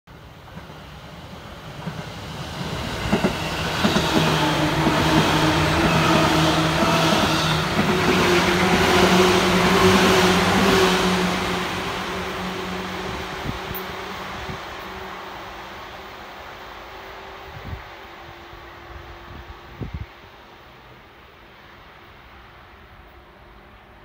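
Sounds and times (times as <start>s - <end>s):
train motors humming: 0.1s - 24.0s
train wheels clacking: 1.8s - 14.2s.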